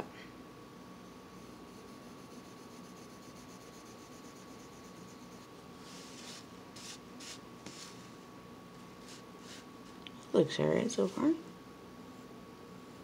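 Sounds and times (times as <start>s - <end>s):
faint steady hum: 0.0s - 13.0s
pencil scratching on paper: 1.4s - 5.5s.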